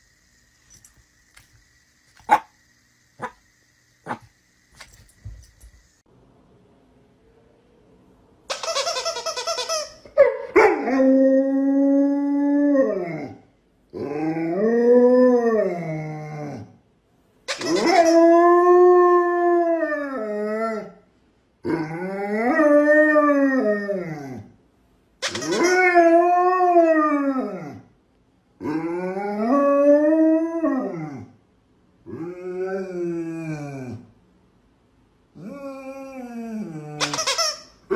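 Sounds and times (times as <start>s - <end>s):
squeaky toy squeaking: 8.5s - 10.1s, 17.5s - 18.2s, 25.2s - 25.8s, 37.0s - 37.9s
dog howling: 21.7s - 24.5s, 28.6s - 31.3s, 35.4s - 37.2s.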